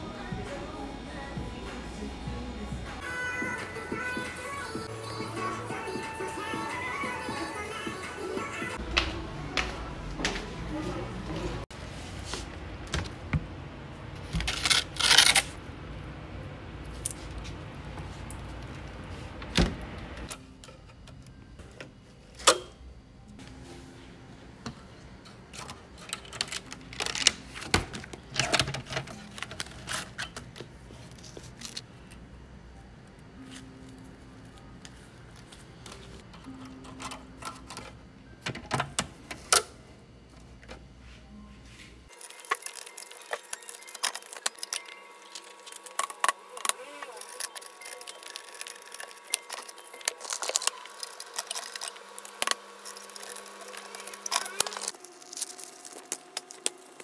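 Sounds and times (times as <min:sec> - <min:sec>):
paper rustling: 0:42.1 - 0:57.0.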